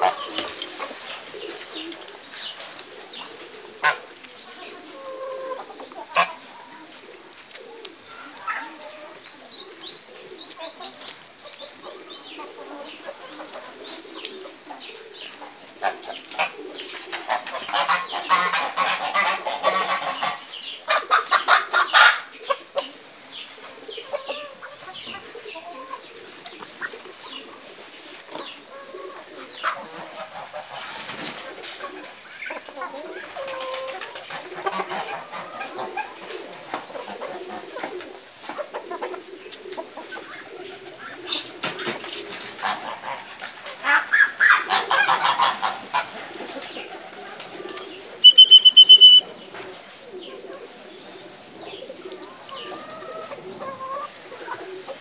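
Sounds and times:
chickens clucking and calling: 0.0 - 55.0.

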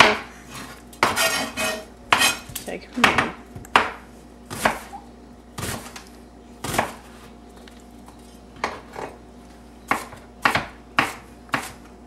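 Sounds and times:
knife chopping on cutting board: 1.0 - 2.5, 3.1 - 4.9, 6.6 - 7.0, 9.9 - 11.9.

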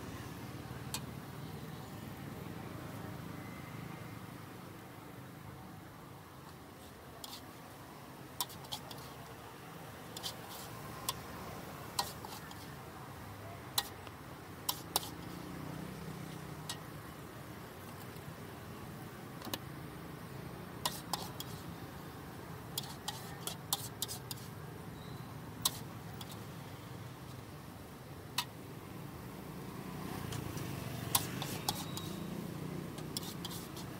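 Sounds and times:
metal spatula scraping steel wok: 8.4 - 9.2, 10.1 - 11.2, 11.9 - 12.8, 14.6 - 15.5, 20.8 - 21.7, 22.7 - 26.5, 31.1 - 32.3, 33.0 - 33.9.

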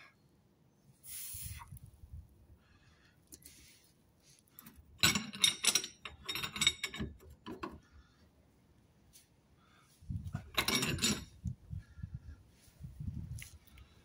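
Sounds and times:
metal hand tools clinking: 5.0 - 7.3, 10.4 - 11.4.

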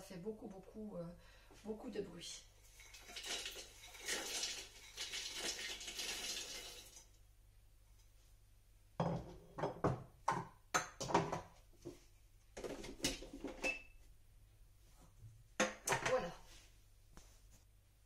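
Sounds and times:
nuts poured into steel bowl: 2.7 - 7.0.

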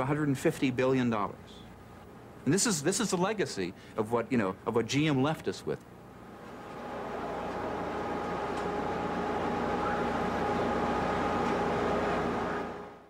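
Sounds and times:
faint whining tones: 6.1 - 13.0.

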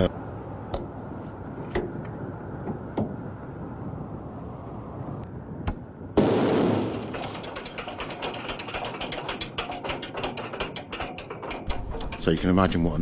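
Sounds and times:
ratchet tool clicking: 7.1 - 13.0.

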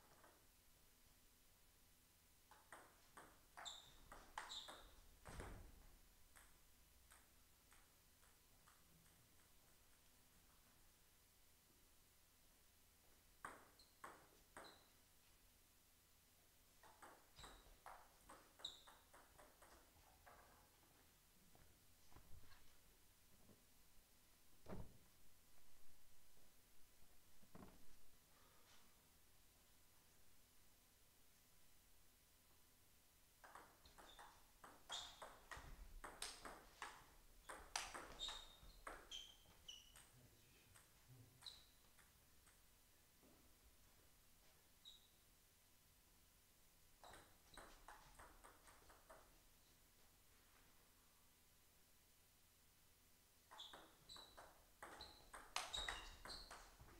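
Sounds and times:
table tennis ball bouncing: 2.5 - 5.6, 6.3 - 9.6, 13.4 - 14.9, 16.8 - 20.7, 33.4 - 42.7, 47.0 - 49.4, 53.5 - 56.9
ball clicking off paddles: 33.4 - 39.1, 53.5 - 56.9.

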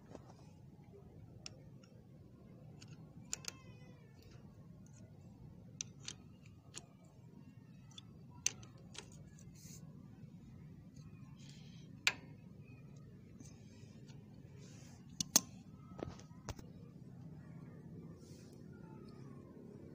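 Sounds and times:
socket wrench clicking: 2.8 - 5.1, 5.8 - 7.0, 7.8 - 9.4, 15.1 - 15.6.

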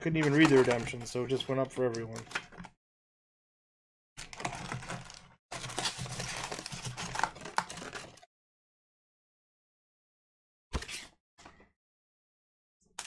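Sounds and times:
cards being handled: 0.1 - 2.6.

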